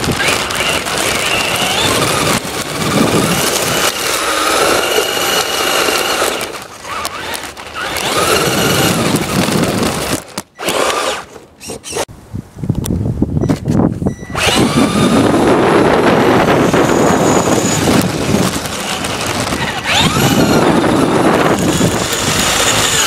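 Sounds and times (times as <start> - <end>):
electric motor whining: 0.0 - 12.1, 14.3 - 23.0
rumbling tyre and road noise: 0.0 - 23.0.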